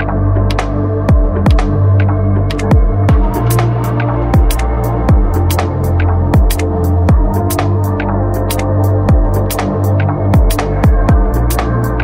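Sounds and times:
sustained bass: 0.0 - 12.0
deep kick drums: 1.0 - 7.8, 8.9 - 11.6
crisp hi-hats: 2.5 - 12.0.

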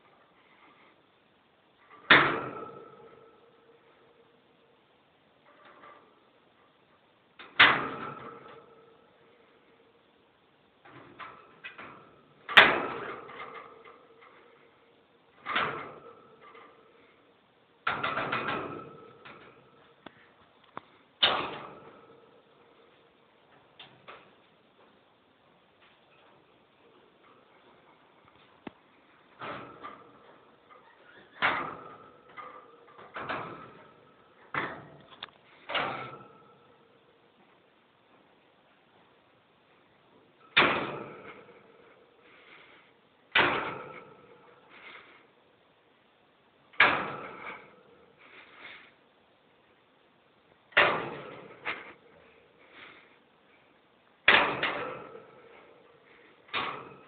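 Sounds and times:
metal cage knocking: 1.9 - 3.5, 50.7 - 52.0, 54.3 - 55.9.

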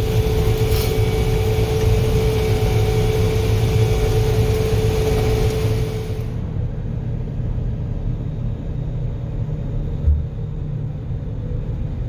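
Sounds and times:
threshing machinery whine: 0.0 - 6.7
low engine drone: 0.0 - 12.0.

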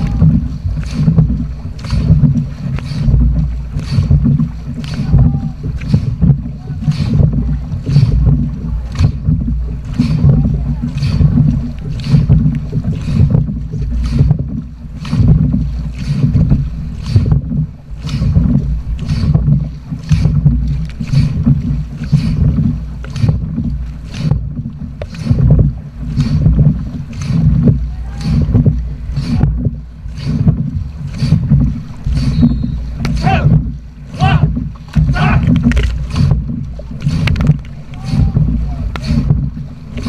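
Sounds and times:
paddles splashing through water: 0.0 - 40.0
wind and water rush: 0.0 - 40.0.

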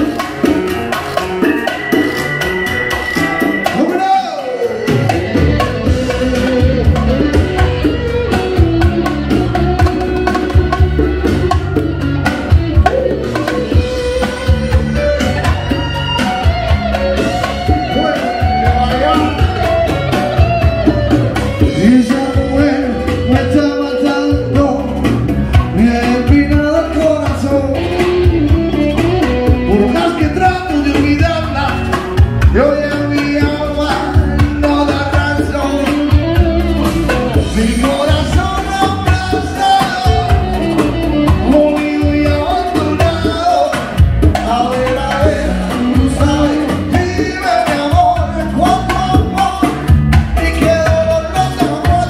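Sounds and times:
guitar: 0.0 - 52.0
man singing into microphone: 12.8 - 16.0, 21.6 - 52.0.

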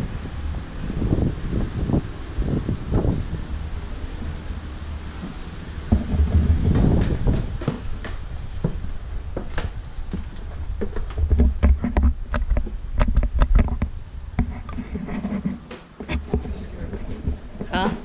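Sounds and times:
footsteps on wooden stairs: 5.2 - 13.4.

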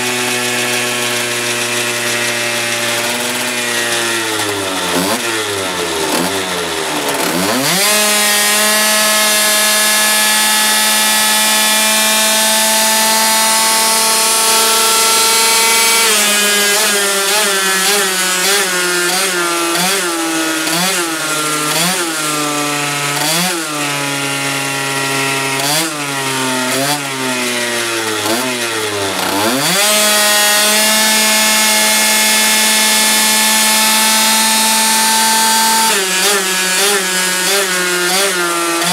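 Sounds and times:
scooter engine screaming at high revs: 0.0 - 38.9.

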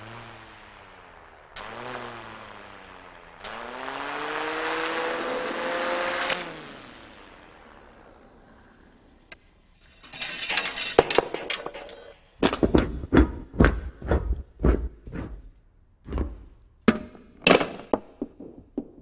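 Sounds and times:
metal part rolling across floorboards: 9.7 - 13.8
metal parts clattering on wooden floor: 9.8 - 12.8.

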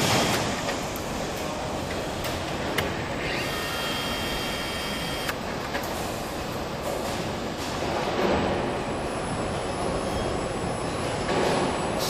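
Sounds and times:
machinery hum: 0.0 - 12.0
power tool whine: 3.2 - 5.4.

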